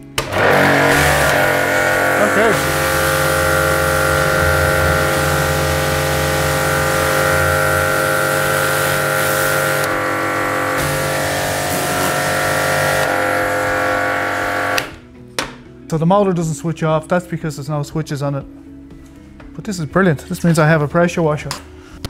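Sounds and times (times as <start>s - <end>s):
pressure washer motor humming: 0.2s - 15.0s
water spray hissing: 0.5s - 14.8s.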